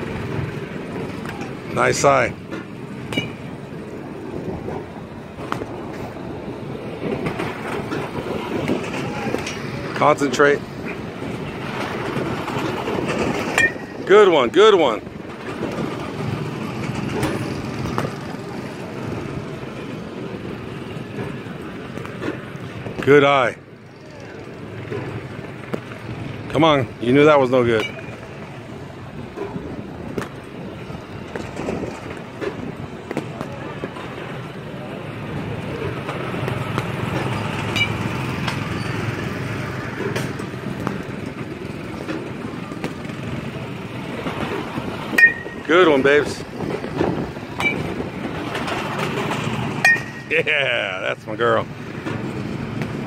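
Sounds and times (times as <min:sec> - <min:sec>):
outdoor background noise: 0:00.0 - 0:53.0
steady motor-like drone: 0:00.0 - 0:53.0
sharp knocks with metallic ring: 0:03.1 - 0:03.5, 0:13.4 - 0:14.1, 0:27.7 - 0:28.2, 0:37.2 - 0:38.9, 0:45.1 - 0:45.7, 0:47.6 - 0:47.9, 0:49.8 - 0:50.3.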